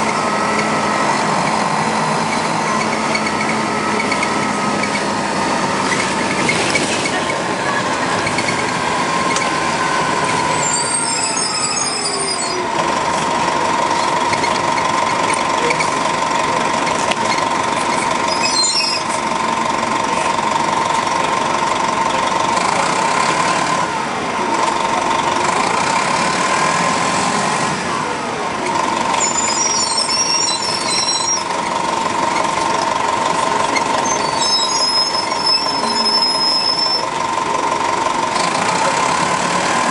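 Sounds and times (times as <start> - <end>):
bus engine whining: 0.0 - 39.9
brief high-pitched squeals: 10.5 - 12.7, 18.3 - 19.2, 29.2 - 31.5, 34.0 - 37.1.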